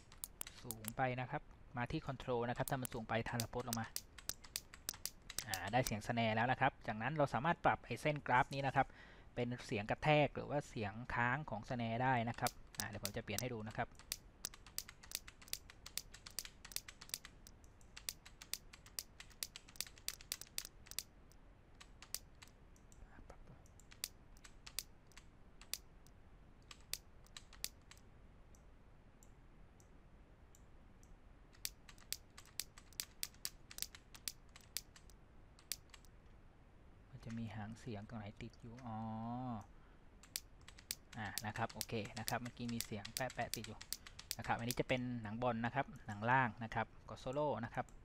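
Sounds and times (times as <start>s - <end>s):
mouse and keyboard clicking: 0.0s - 1.0s, 2.6s - 6.0s, 12.3s - 21.1s, 21.8s - 23.0s, 23.6s - 25.8s, 26.6s - 28.0s, 31.6s - 36.1s, 40.2s - 44.9s.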